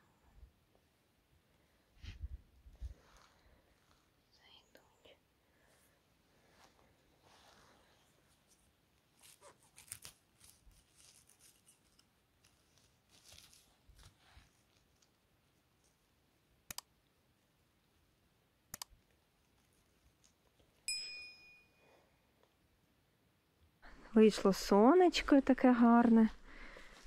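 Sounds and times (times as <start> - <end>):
faint crackling and snapping: 8.3 - 17.1, 18.6 - 20.9
sharp clicks: 16.7 - 16.9, 18.7 - 19.0.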